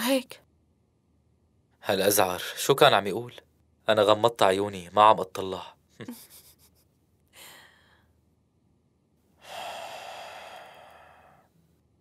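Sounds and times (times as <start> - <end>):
person breathing: 7.3 - 8.2, 9.4 - 11.6.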